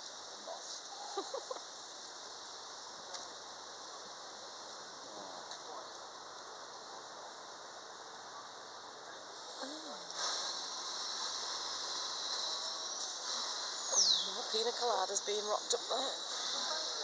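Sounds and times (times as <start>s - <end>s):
faint click: 3.1s - 3.3s.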